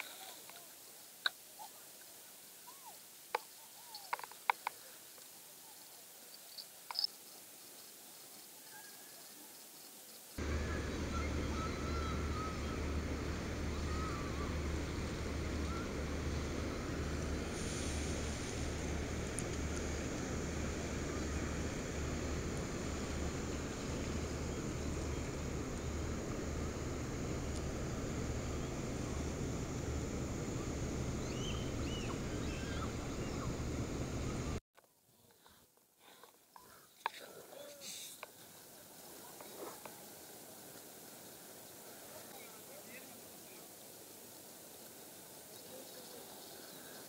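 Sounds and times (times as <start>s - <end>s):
low rumbling noise: 10.4s - 34.6s
bird warbling: 30.5s - 34.5s.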